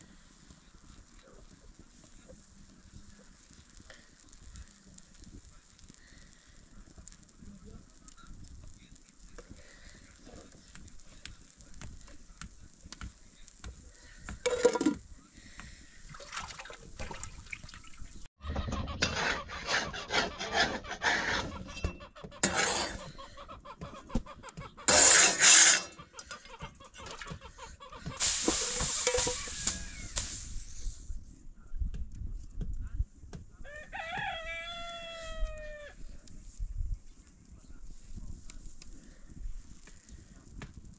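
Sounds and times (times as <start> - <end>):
rustling and scraping: 0.0 - 15.9, 18.7 - 23.2, 24.2 - 26.1, 28.0 - 31.2
rooster crowing: 33.6 - 36.0.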